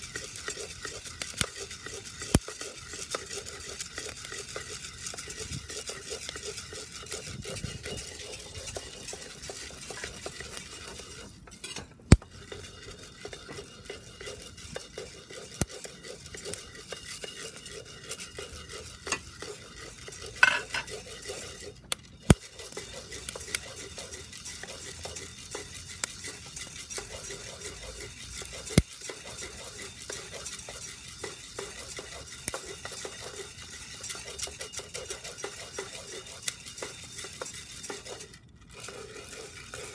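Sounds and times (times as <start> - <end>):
coffee beans rattling in a pot: 0.0 - 39.9
gas burner hissing: 19.0 - 21.4.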